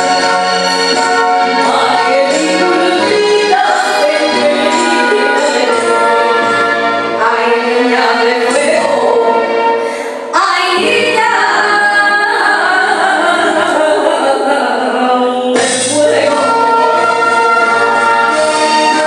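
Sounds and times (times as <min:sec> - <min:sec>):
instrumental backing: 0:00.0 - 0:13.9, 0:15.0 - 0:19.0
woman singing into a microphone: 0:01.4 - 0:19.0.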